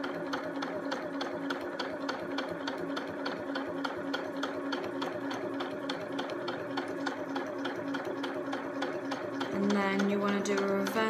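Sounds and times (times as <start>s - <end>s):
sewing machine motor hum: 0.0s - 11.0s
needle ticking: 1.5s - 11.0s.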